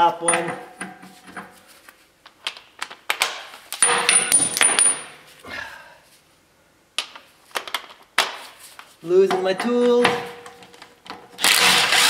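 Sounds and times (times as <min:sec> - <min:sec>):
metal tools clinking and clattering: 0:03.8 - 0:05.2.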